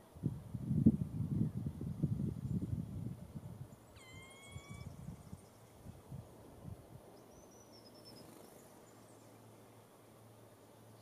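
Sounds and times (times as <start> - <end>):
bird drawn-out rising whistle: 4.0 - 5.0
faint high falling bird whistle: 4.0 - 5.0.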